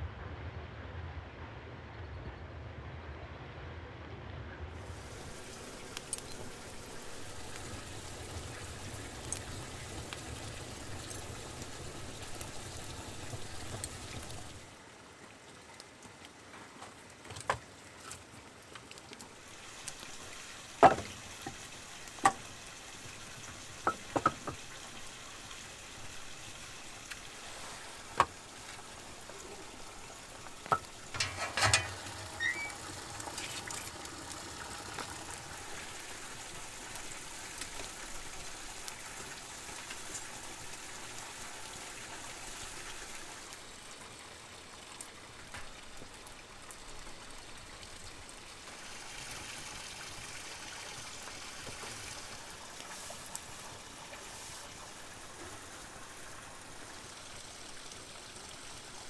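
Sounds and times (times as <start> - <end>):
wood fire crackling and hissing: 4.6 - 59.0
firewood logs knocking: 20.8 - 21.6, 23.8 - 24.7.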